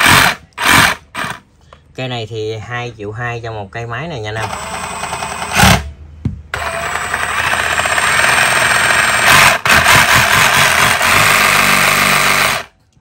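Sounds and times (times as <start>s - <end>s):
reciprocating saw motor whirring: 0.0s - 1.4s, 6.6s - 12.7s.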